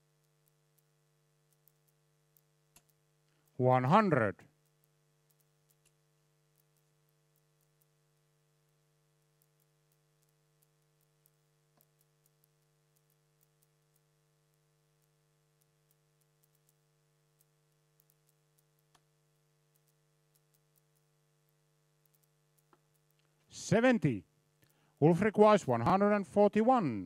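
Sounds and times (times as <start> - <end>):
faint ticks: 0.0 - 3.6, 4.4 - 23.5, 24.5 - 25.0
low electrical hum: 0.0 - 27.0
clicks: 19.7 - 24.0.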